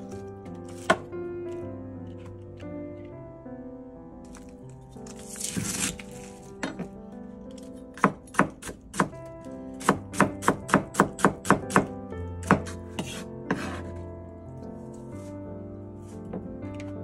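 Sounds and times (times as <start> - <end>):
background music: 0.0 - 17.0
knife chopping on cutting board: 8.0 - 9.1, 9.8 - 13.9.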